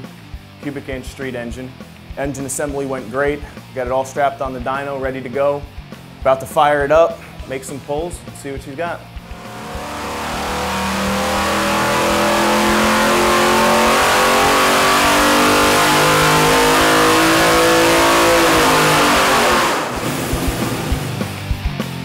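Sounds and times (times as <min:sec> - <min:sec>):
engine at full throttle: 0:09.2 - 0:21.4.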